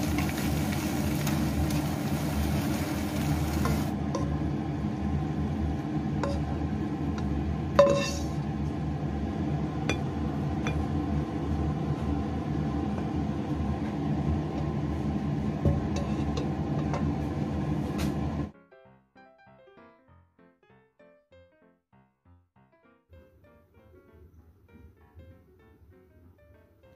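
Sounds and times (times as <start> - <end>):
low kitchen hum: 0.0 - 18.5.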